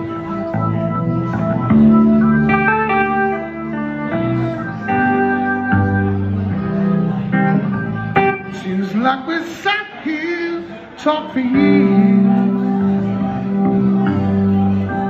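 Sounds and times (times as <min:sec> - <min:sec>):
man singing: 0:08.4 - 0:13.5.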